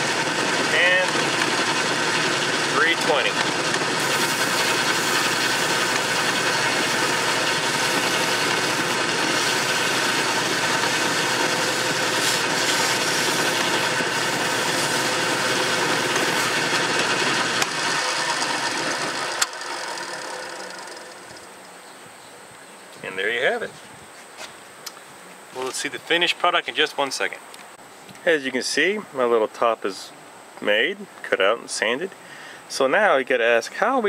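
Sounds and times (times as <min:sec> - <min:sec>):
sandpaper on spinning wood: 0:00.0 - 0:21.0
wood lathe running: 0:00.0 - 0:21.7.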